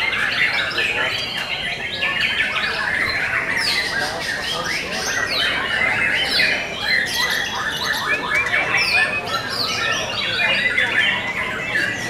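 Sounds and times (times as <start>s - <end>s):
chorus of songbirds singing: 0.0s - 12.0s.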